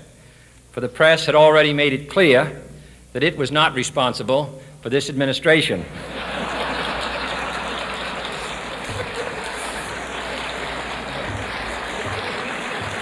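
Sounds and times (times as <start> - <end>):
audience laughing: 5.9 - 13.0
audience applauding: 6.0 - 13.0.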